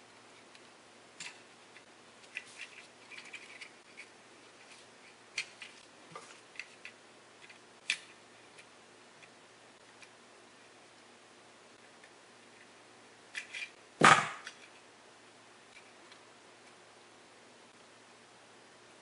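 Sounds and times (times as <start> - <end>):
small plastic parts clicking: 0.4 - 10.1.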